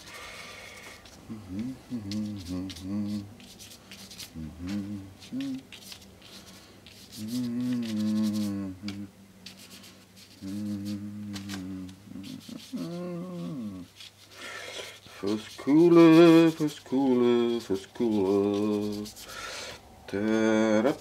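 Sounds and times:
man humming: 1.3 - 3.3, 4.3 - 5.7, 7.1 - 9.2, 10.3 - 13.9, 15.2 - 19.2, 20.1 - 21.0
paintbrush rubbing on paper: 1.9 - 8.6, 9.4 - 19.5.

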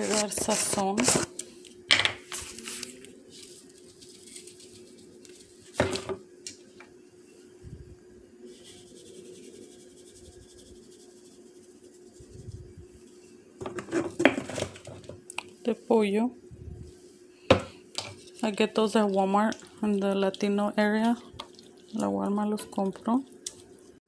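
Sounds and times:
steady low hum: 0.0 - 24.0
plastic jar handling noise: 13.6 - 15.2.

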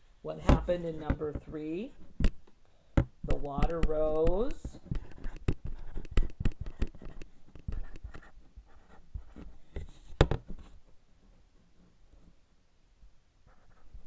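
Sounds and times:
pen scratching on paper: 3.6 - 10.7.

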